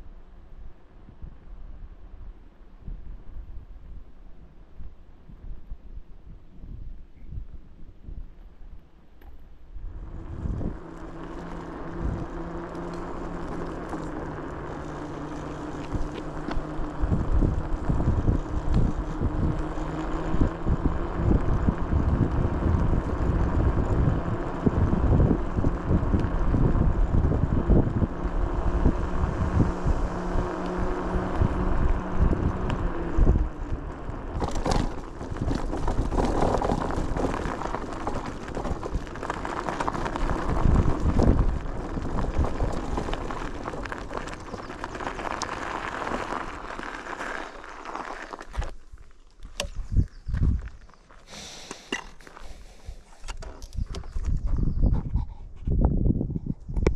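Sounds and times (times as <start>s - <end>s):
wind buffeting microphone: 2.8s - 8.9s, 9.8s - 47.8s, 49.4s - 51.0s, 52.4s - 56.9s
vehicle engine running: 9.8s - 48.8s
rustling noise: 28.6s - 54.7s.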